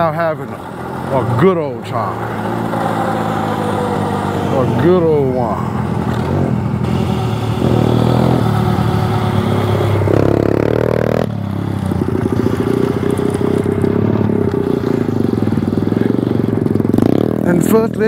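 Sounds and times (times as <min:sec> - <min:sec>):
dirt bike engine running: 0:00.0 - 0:18.0.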